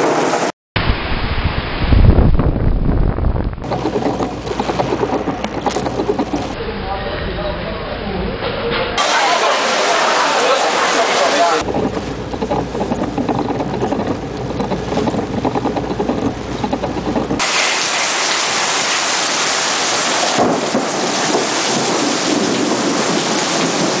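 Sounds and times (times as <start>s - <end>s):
heavy rain pouring: 0.0s - 6.6s, 9.0s - 24.0s
low rumble: 0.8s - 6.6s, 11.6s - 17.4s.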